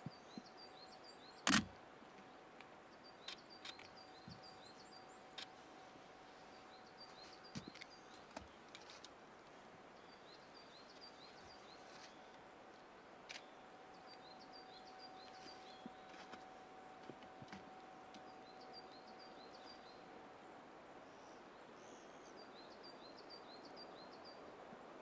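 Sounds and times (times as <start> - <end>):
small birds chirping: 0.0 - 1.6, 2.2 - 5.6, 6.4 - 12.5, 13.3 - 16.4
faint steady tone: 0.0 - 25.0.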